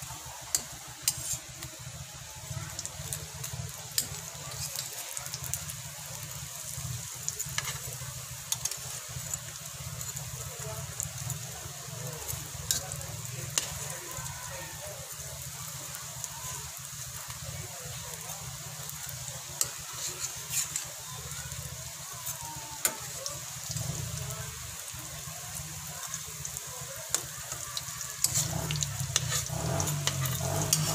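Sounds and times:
doughnuts sizzling in oil: 0.0s - 30.9s.

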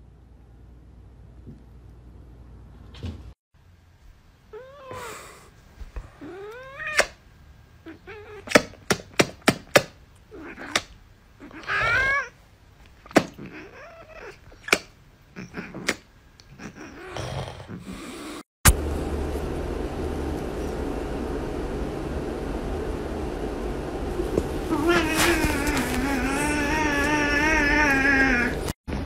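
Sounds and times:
cat meowing: 11.4s - 12.4s, 24.7s - 28.7s.

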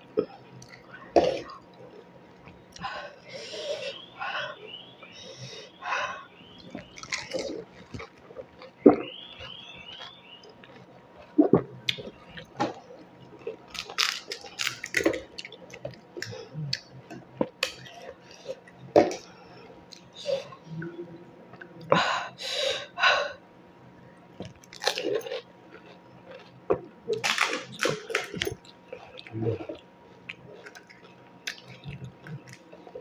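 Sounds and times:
crisp food crunching: 6.5s - 19.3s, 24.4s - 33.0s
wet chewing: 6.5s - 19.3s, 24.4s - 33.0s.

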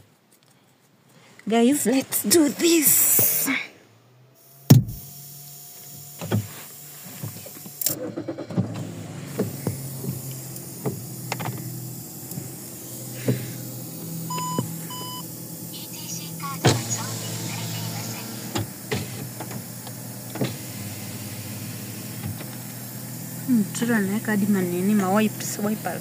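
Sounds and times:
car engine humming: 1.1s - 26.0s
short electronic car beeps: 14.3s - 18.3s.

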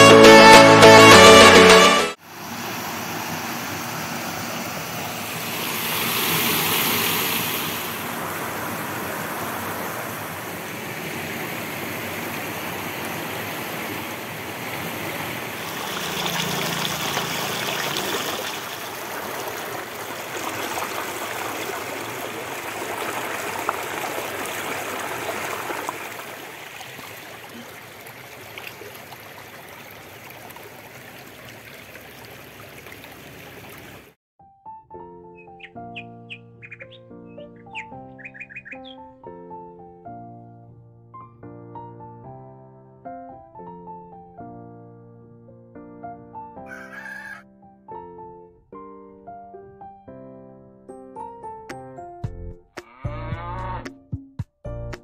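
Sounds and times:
stream water rushing over rocks: 2.3s - 34.2s.

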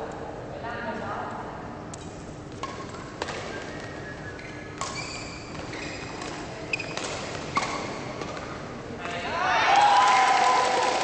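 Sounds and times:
racket hitting shuttlecock: 2.0s - 3.8s, 4.8s - 8.6s
shoes squeaking on court floor: 2.0s - 8.7s.

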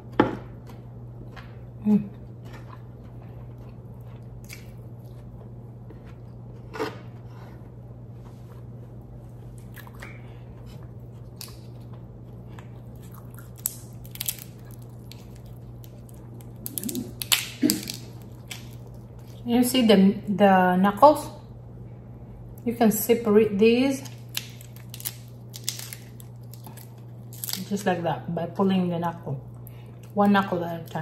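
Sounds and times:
chewing: 2.2s - 7.2s, 9.5s - 19.4s
crab shell cracking: 11.3s - 11.9s, 12.9s - 19.4s, 24.0s - 27.8s.

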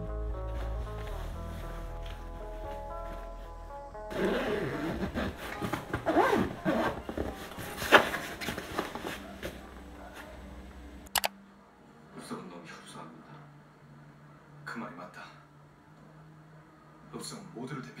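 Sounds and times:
fabric rustling: 0.5s - 10.3s
zipper closing: 4.1s - 8.2s
sharp click: 11.1s - 11.3s.

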